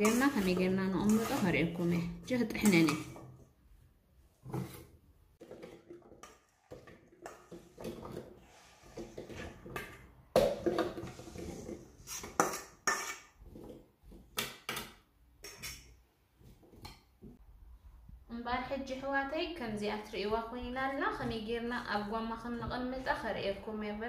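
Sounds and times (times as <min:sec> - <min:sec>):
metal spoon scraping steel bowl: 0:00.0 - 0:03.3, 0:10.9 - 0:13.4, 0:15.4 - 0:15.9.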